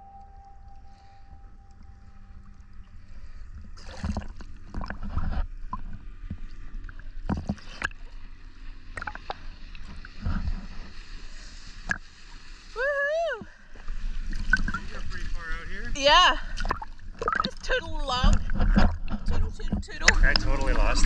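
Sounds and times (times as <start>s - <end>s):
water splashing against camera: 1.5s - 21.0s.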